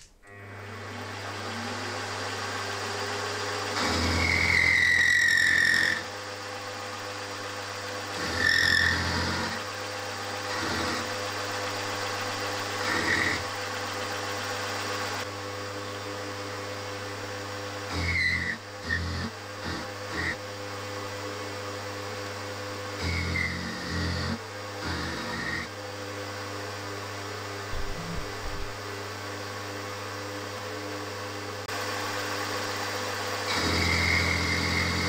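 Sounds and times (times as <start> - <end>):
end mill cutting metal: 0.2 - 15.2, 17.9 - 20.4, 27.7 - 28.8
milling machine running: 0.3 - 15.2, 17.9 - 20.4, 22.9 - 25.7, 27.7 - 28.9, 31.7 - 35.0
high squeal: 4.0 - 6.1.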